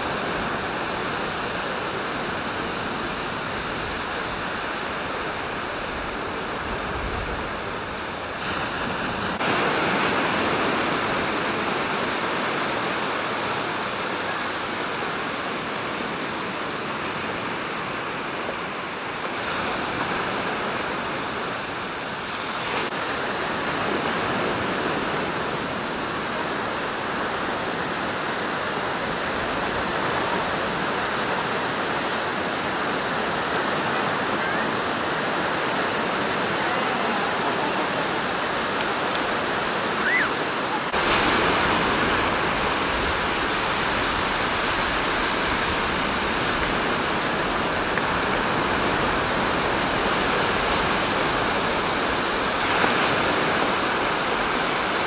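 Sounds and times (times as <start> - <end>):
waves breaking on a beach: 0.0 - 55.0.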